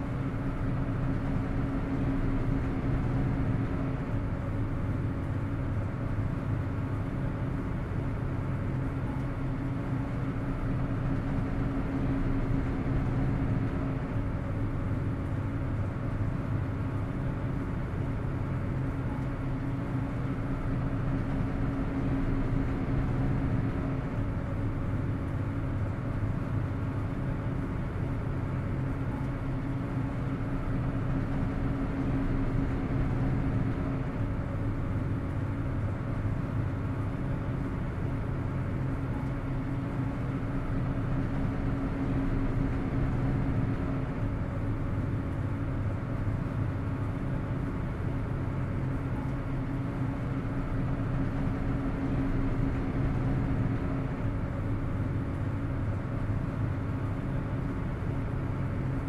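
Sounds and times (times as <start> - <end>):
ferry engines droning: 0.0 - 59.0.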